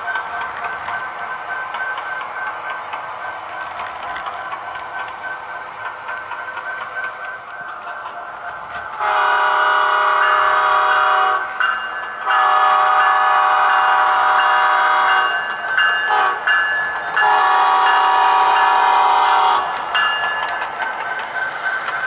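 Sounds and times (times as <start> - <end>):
locomotive horn blasts: 9.0 - 11.5, 12.3 - 15.3, 16.1 - 16.4, 17.2 - 19.7.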